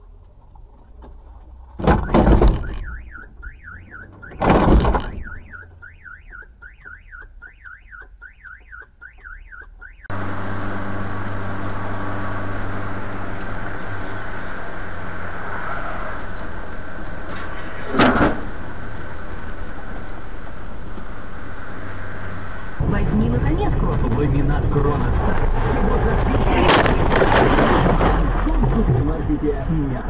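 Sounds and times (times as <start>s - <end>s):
vehicle running noise: 0.0s - 30.0s
car collision crash: 1.8s - 5.8s, 17.4s - 18.5s, 26.0s - 29.0s
car alarm warbling: 1.8s - 10.2s.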